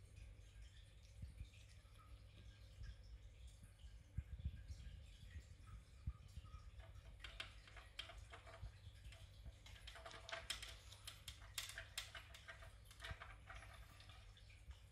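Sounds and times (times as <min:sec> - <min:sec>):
kibble rattling in plastic toy: 0:06.8 - 0:14.3.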